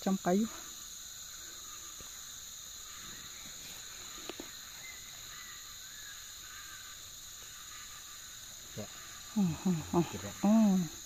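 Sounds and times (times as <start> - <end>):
crickets chirping drone: 0.0 - 11.0.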